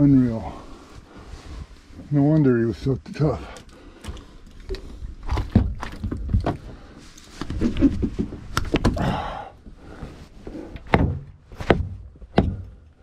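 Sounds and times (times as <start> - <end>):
sharp knocks and thuds: 5.2 - 6.8, 10.8 - 12.8.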